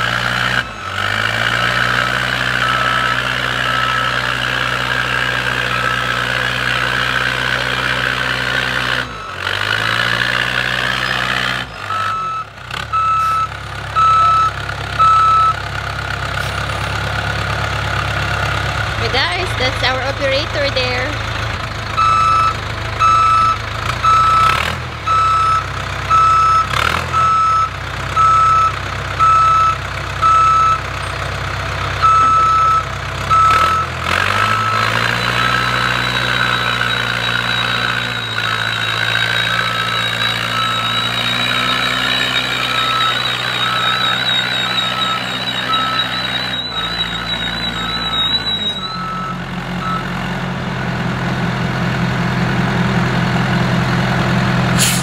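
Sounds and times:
diesel engine running: 0:00.0 - 0:55.0
reversing alarm beeping: 0:01.8 - 0:15.6, 0:22.0 - 0:31.1, 0:31.9 - 0:50.2.

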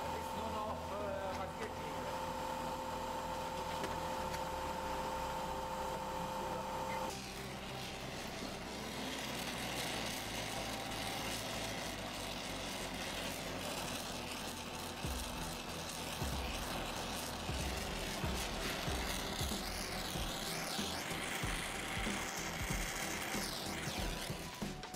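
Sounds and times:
gas torch flame hissing: 0:00.0 - 0:24.9
two-tone hum: 0:00.0 - 0:24.9.

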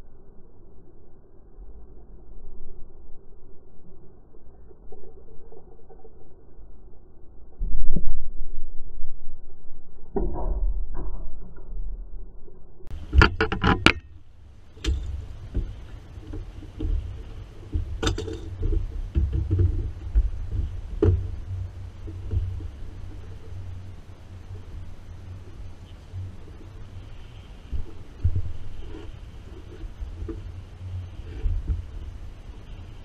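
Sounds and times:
steady low rumble: 0:00.0 - 0:33.0
fishing gear knocking on boat: 0:12.9 - 0:23.8.

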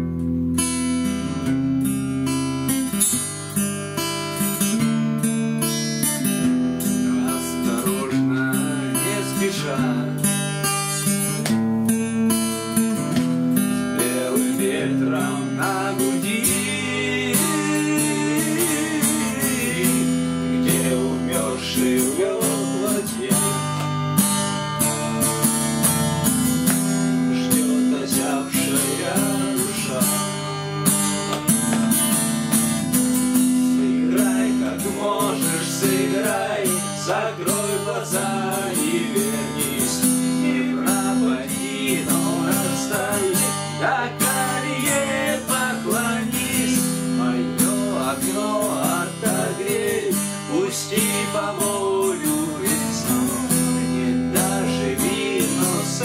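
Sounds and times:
acoustic guitar strumming: 0:00.0 - 0:56.0
voices singing: 0:07.1 - 0:10.2, 0:13.9 - 0:24.0, 0:26.2 - 0:30.9, 0:33.4 - 0:56.0.

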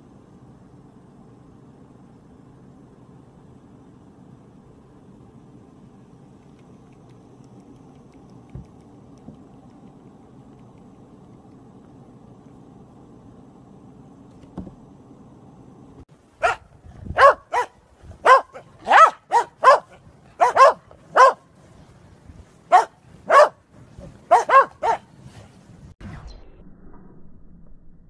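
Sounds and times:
dogs barking: 0:16.4 - 0:21.4, 0:22.7 - 0:23.6, 0:24.3 - 0:25.1.

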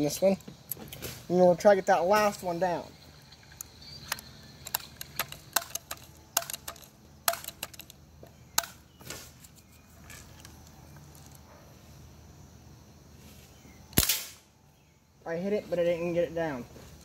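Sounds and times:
air rifle clicks and clacks: 0:03.6 - 0:08.8.

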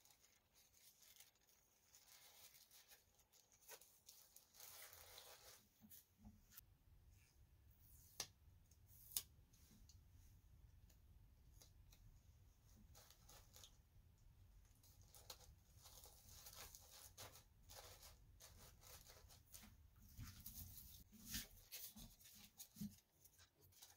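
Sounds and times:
tissue paper rustling: 0:00.0 - 0:06.6, 0:14.8 - 0:23.9.

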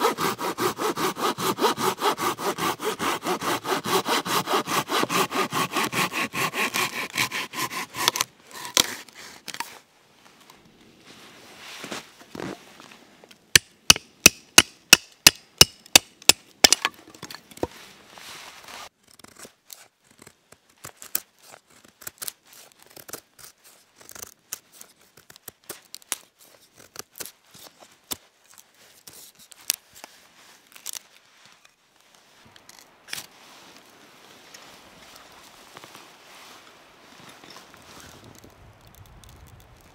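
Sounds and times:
knife shaving wood: 0:00.0 - 0:09.8, 0:18.6 - 0:31.8.

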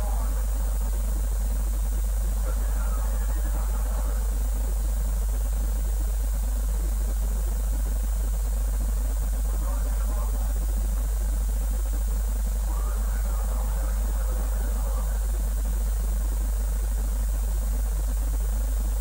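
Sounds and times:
low hum: 0:00.0 - 0:19.0.

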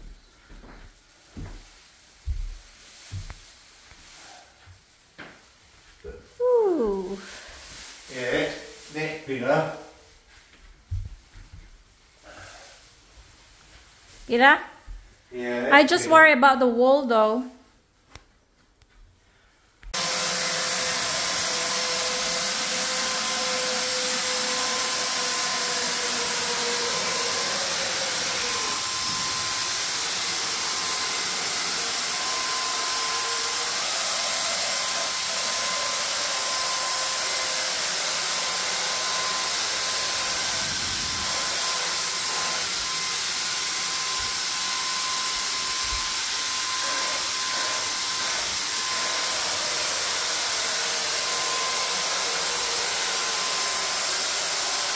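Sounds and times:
electric paint sprayer hissing: 0:20.0 - 0:54.9.

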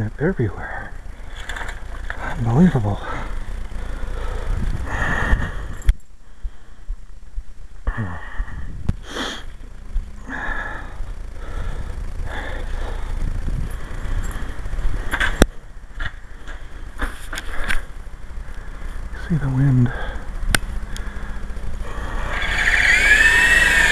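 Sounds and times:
faint whirring: 0:00.0 - 0:23.9
wind buffeting microphone: 0:04.2 - 0:05.9, 0:08.4 - 0:09.0, 0:13.0 - 0:15.1.

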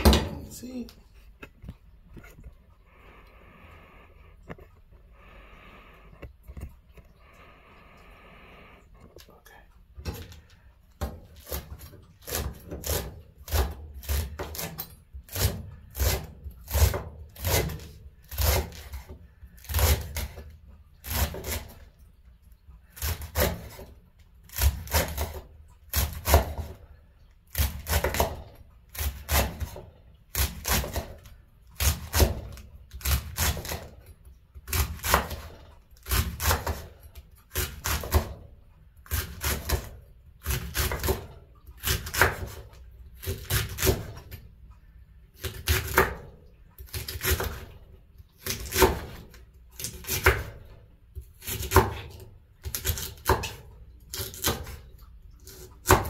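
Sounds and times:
knife chopping cabbage on board: 0:11.0 - 0:21.8, 0:22.9 - 0:23.9, 0:24.5 - 0:26.8, 0:27.5 - 0:34.0, 0:34.6 - 0:38.4, 0:39.0 - 0:44.3, 0:45.4 - 0:47.7, 0:48.4 - 0:54.8, 0:55.4 - 0:56.0.

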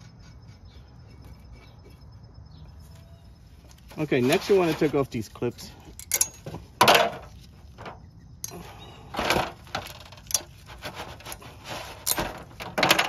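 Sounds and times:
metal clicks and scrapes: 0:04.3 - 0:13.0.

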